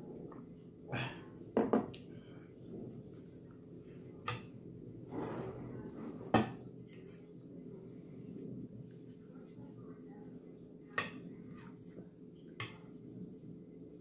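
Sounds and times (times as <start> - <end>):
soft scrape: 5.0 - 6.3.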